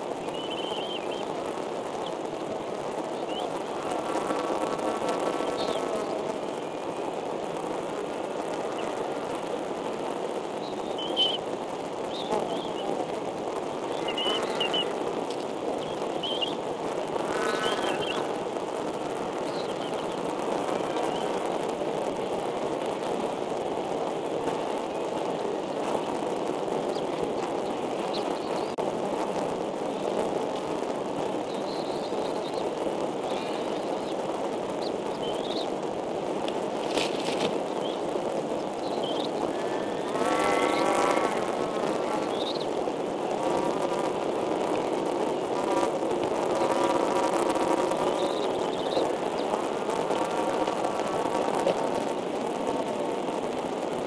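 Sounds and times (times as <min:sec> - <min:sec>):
steady outdoor hiss: 0:00.0 - 0:54.0
high bird chirps: 0:00.3 - 0:01.2, 0:10.6 - 0:11.4, 0:15.8 - 0:16.6.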